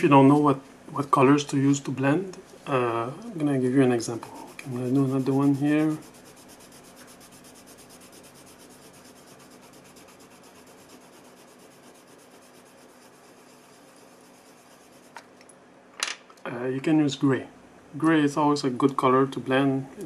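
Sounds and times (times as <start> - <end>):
colored pencil scratching on paper: 3.8 - 15.2.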